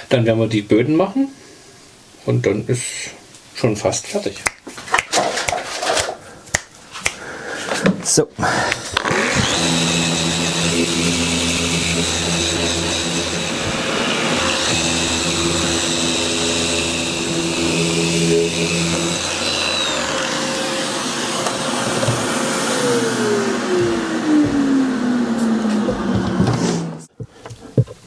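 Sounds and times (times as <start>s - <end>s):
orbital sander sanding wood: 8.4s - 27.2s.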